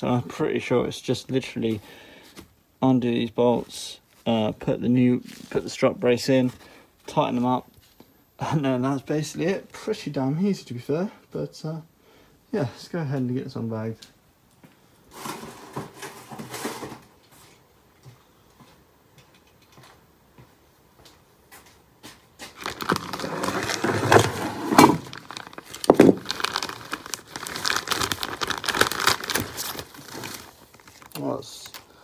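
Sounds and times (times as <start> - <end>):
plastic rustle: 15.1 - 17.1, 22.4 - 31.9
plastic bag crinkling and tearing: 22.5 - 31.9.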